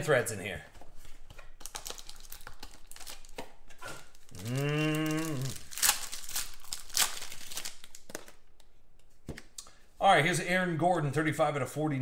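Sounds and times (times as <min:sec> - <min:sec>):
foil packs crinkling and tearing: 0:01.6 - 0:08.4
person humming: 0:04.3 - 0:05.7.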